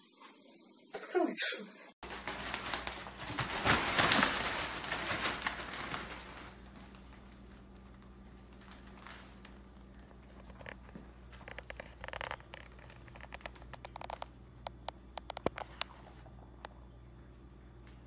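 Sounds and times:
fabric tunnel rustling: 0:02.0 - 0:14.0.

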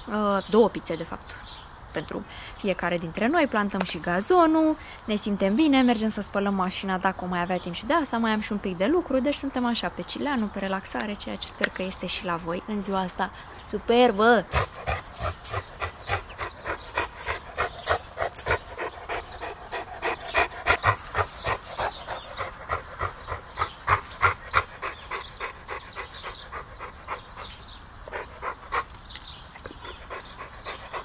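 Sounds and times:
dog panting: 0:14.4 - 0:31.0.

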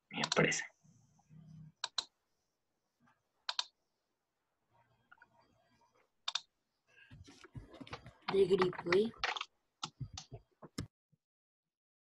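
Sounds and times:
computer mouse clicks: 0:01.8 - 0:02.1, 0:03.5 - 0:03.8, 0:06.3 - 0:06.5, 0:07.9 - 0:10.9.

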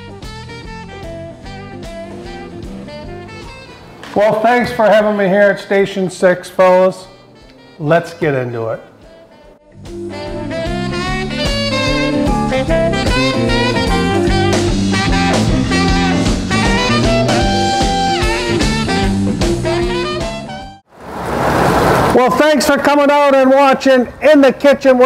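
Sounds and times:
jazz music with horn and drums: 0:00.0 - 0:05.0, 0:09.0 - 0:20.8.

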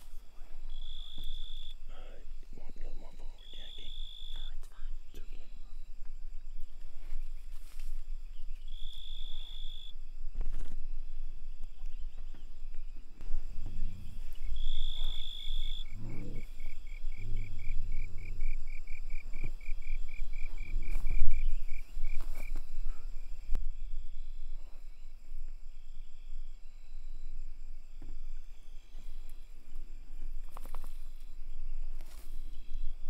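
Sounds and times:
insect high trill: 0:00.0 - 0:33.0
insect rapid pulsing call: 0:00.0 - 0:33.0
low rumbling sounds: 0:09.0 - 0:30.4.

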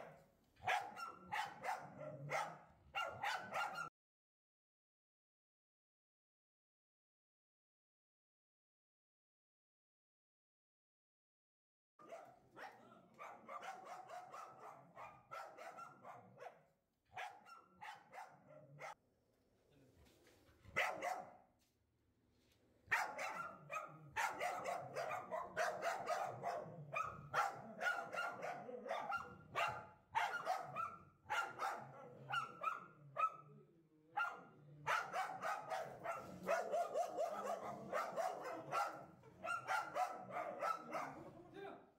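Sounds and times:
dogs barking rapidly: 0:00.0 - 0:03.9, 0:12.0 - 0:19.0, 0:20.7 - 0:21.4, 0:22.9 - 0:33.5, 0:34.2 - 0:41.4.

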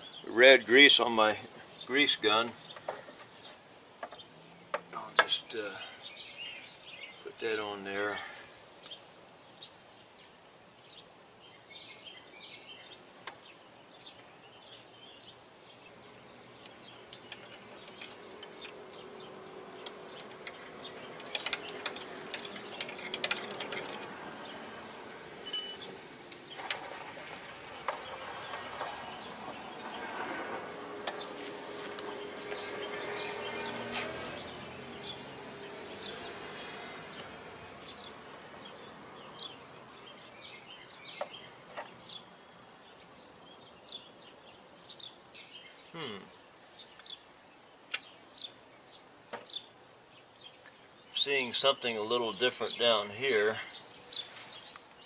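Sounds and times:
metal parts clicking and clinking: 0:21.2 - 0:24.1, 0:25.4 - 0:25.9.

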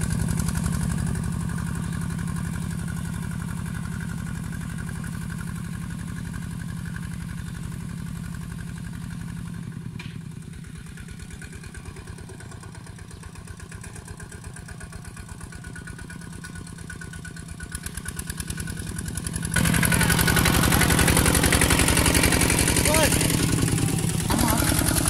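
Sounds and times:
walking tractor engine pulsing: 0:10.6 - 0:25.0.

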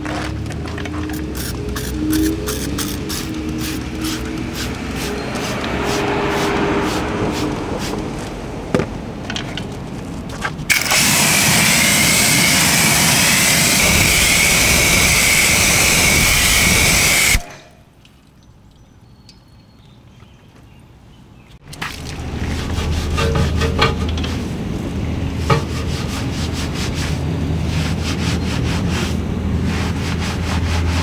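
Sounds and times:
pressure washer spraying water: 0:01.1 - 0:08.2, 0:10.7 - 0:17.7.

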